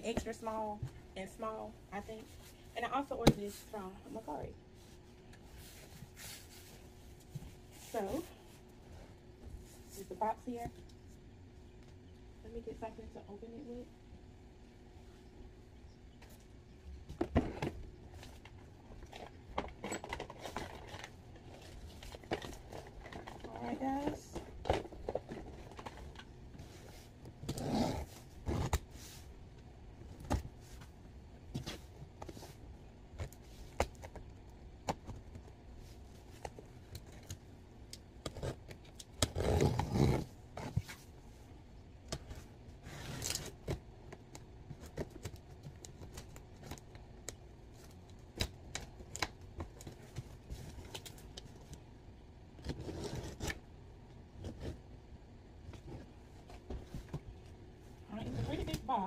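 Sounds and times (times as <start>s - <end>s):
cardboard rubbing and scraping: 5.5s - 8.4s, 39.3s - 41.1s, 52.6s - 53.6s.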